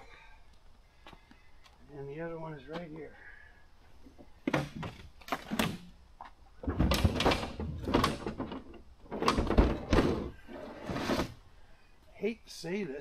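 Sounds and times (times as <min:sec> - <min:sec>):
gear scraping sliding and knocking: 0:06.9 - 0:11.4.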